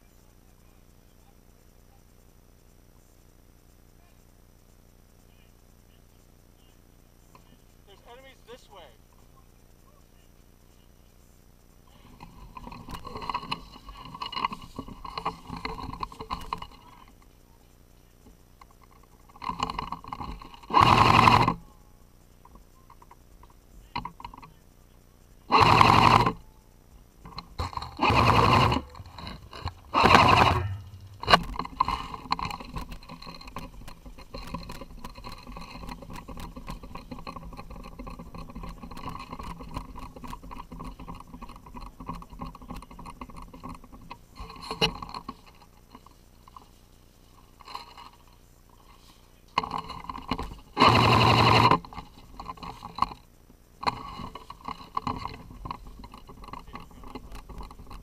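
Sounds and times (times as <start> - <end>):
crackling and rustling: 0.8 - 58.0
airsoft rifle full-auto bursts: 20.2 - 21.6, 25.5 - 26.4, 27.6 - 34.0, 50.8 - 52.0.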